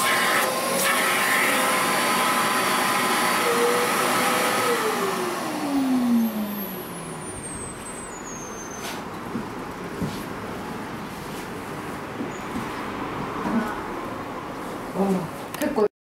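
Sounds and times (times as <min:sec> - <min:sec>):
upholstery vacuum whooshing whine: 0:00.0 - 0:07.4.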